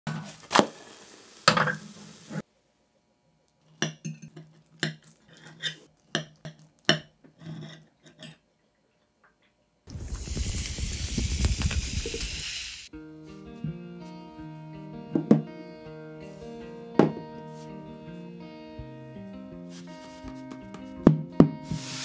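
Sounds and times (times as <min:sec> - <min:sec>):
loud steady hiss: 0:00.4 - 0:02.4, 0:09.9 - 0:12.9, 0:21.6 - 0:22.0.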